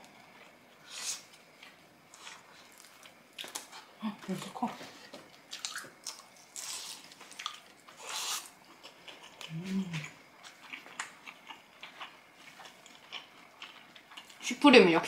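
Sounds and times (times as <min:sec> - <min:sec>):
person humming: 0:09.5 - 0:10.2.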